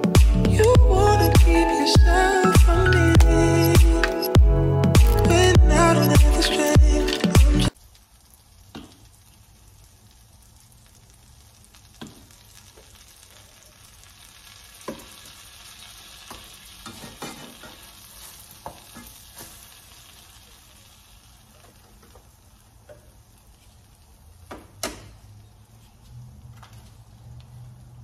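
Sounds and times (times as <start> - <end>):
background music: 0.0 - 7.8
food sizzling in skillets: 7.7 - 26.3
utensils tapping pans: 16.3 - 17.9.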